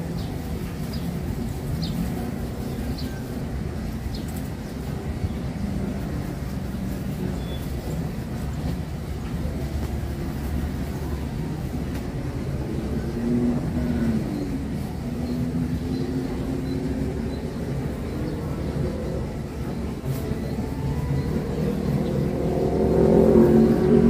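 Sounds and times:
vehicle engine running: 3.6s - 24.0s
low rumble: 18.0s - 24.0s.

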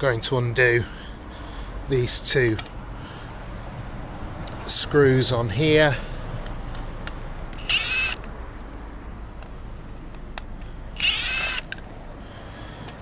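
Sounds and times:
power drill whirring: 7.6s - 8.3s, 11.0s - 11.8s.

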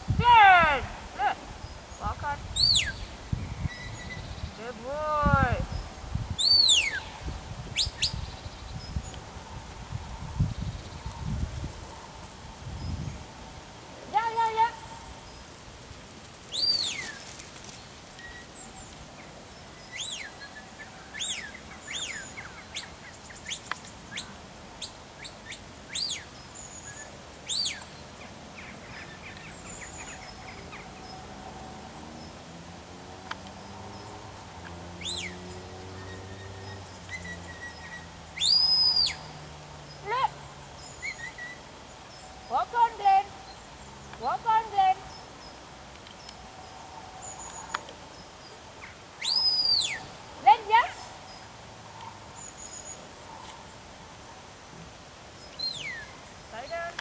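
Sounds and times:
shepherd's whistle notes: 38.4s - 39.2s, 49.2s - 50.0s.

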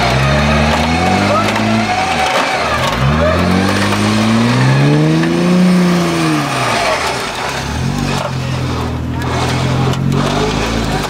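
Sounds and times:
car engine revving: 0.0s - 11.0s.

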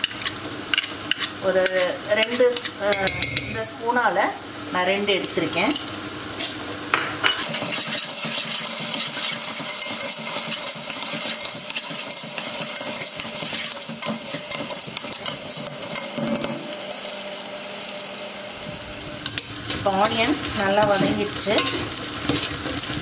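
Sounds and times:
metal spoon scraping pot: 0.0s - 3.6s, 7.3s - 16.7s, 19.4s - 22.8s
onions sizzling in oil: 0.0s - 23.0s.

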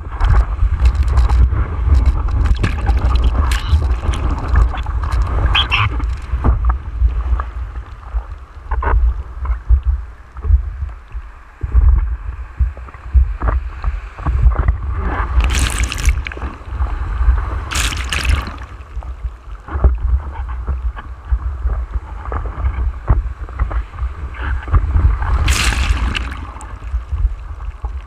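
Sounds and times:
whitewater splashing against board: 15.2s - 17.0s, 17.6s - 19.2s, 25.1s - 28.0s
rushes of spray: 25.4s - 27.0s.

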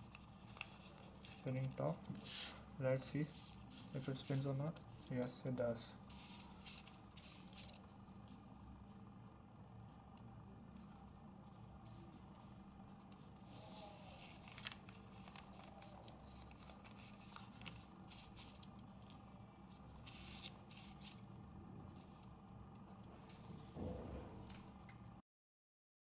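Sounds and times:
paper top spinning on table: 0.0s - 5.2s, 6.1s - 8.4s, 10.8s - 21.3s
steady low hum: 0.0s - 25.2s.

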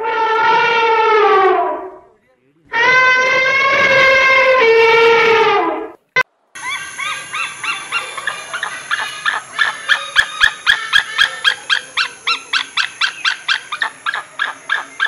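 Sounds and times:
eagle calling: 6.6s - 15.0s.

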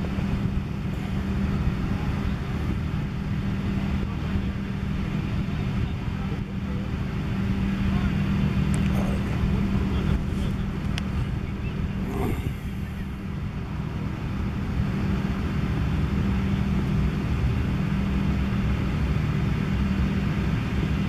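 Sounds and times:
constant hum: 0.0s - 21.0s
low rumble: 9.0s - 13.6s.

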